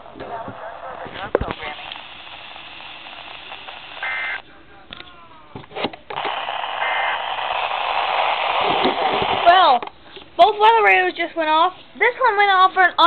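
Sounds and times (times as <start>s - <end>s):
radio hiss and static: 0.0s - 9.9s
buzzy two-tone data squeal: 2.4s - 4.4s, 6.4s - 7.5s.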